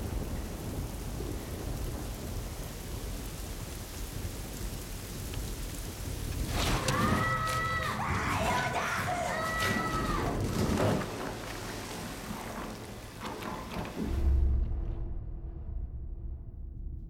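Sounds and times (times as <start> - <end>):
heavy rain splashing: 0.0 - 15.0
deep rumble: 5.4 - 17.0
high voice shouting: 6.8 - 10.2.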